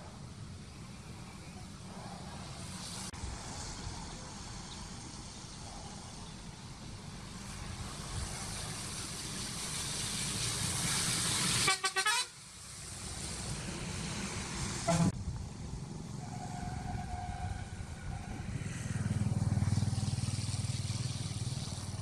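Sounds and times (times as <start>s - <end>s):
vehicle horn toots: 11.6s - 12.4s
vehicle passing: 12.7s - 22.0s.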